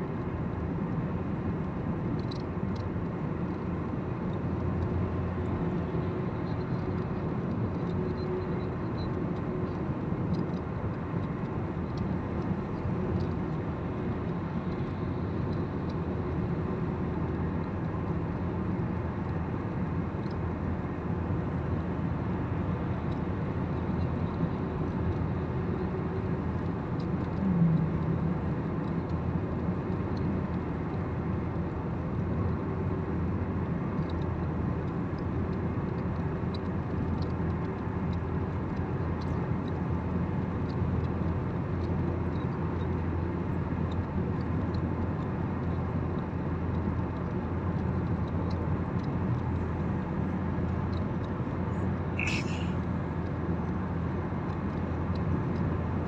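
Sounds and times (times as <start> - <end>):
car road and engine noise: 0.0 - 56.0
brief low tone: 27.4 - 28.0.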